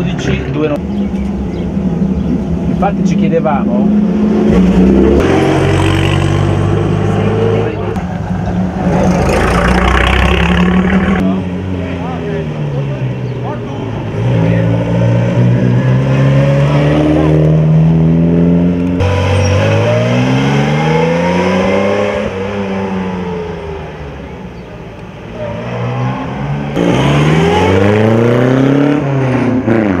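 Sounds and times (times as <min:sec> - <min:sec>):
racing car engines accelerating past: 0:04.1 - 0:12.0.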